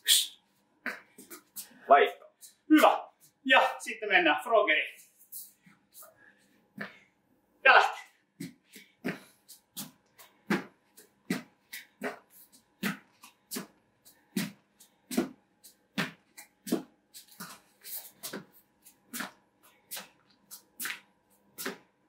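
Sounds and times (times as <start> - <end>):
person breathing hard: 8.5 - 10.5.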